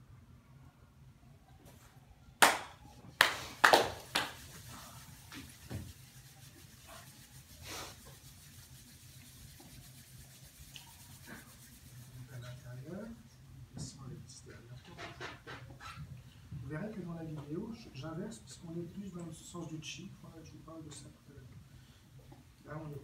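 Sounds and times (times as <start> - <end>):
hands slapping body: 2.4 - 4.4.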